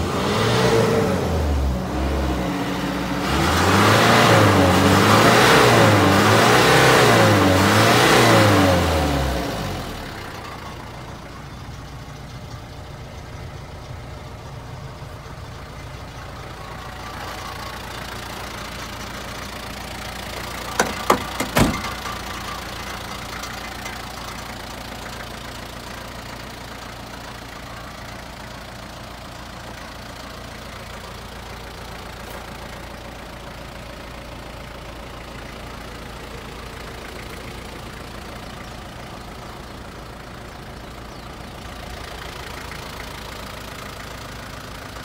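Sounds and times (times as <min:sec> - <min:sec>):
truck engine idling: 0:08.5 - 0:45.0.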